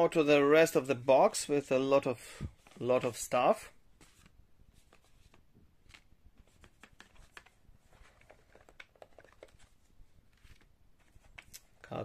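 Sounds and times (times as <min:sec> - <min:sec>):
paper cards rustling in a box: 0:04.0 - 0:11.8
small irregular taps: 0:04.9 - 0:11.7.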